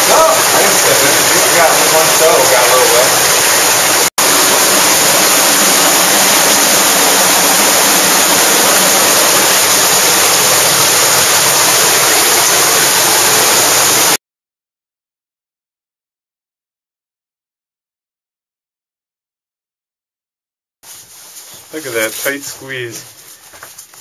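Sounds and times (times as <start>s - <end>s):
underground water rushing: 0.0s - 14.2s.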